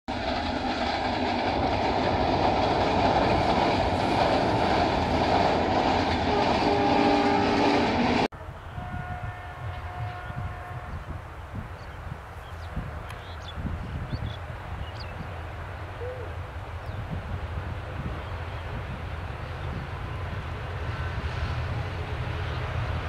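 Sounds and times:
diesel train rumbling on track: 0.1s - 23.0s
locomotive horn: 6.1s - 11.2s.

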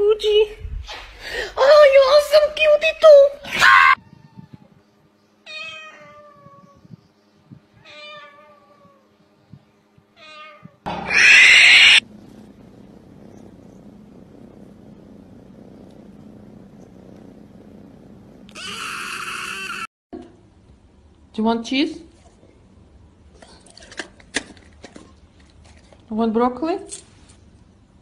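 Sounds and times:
cat meowing: 5.5s - 6.8s, 7.8s - 9.0s, 10.2s - 12.0s, 18.5s - 19.9s
kitten crying loudly: 7.8s - 9.0s, 10.2s - 12.0s, 18.5s - 19.9s.

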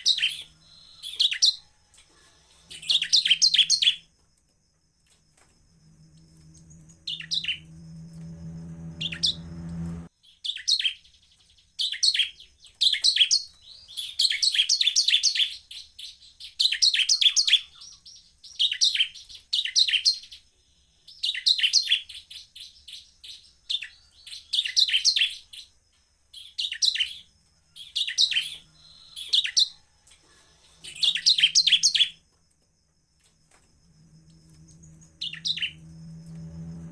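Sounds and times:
bird chirps and trills: 0.0s - 4.1s, 6.1s - 20.5s, 30.6s - 32.2s, 34.4s - 36.4s.

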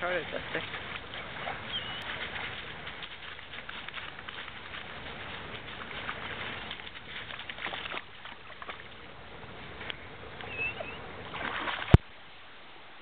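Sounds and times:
water sloshing and splashing: 0.0s - 12.2s
bird chirp: 1.7s - 2.1s, 10.4s - 11.1s.

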